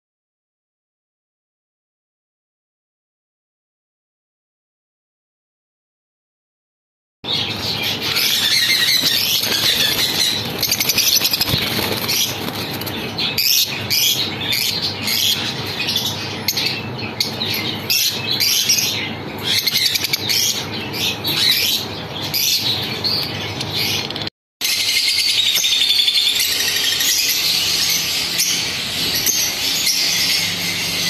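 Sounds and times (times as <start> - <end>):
lovebirds squawking and chirping: 7.3 - 31.0
wings fluttering: 8.0 - 13.6.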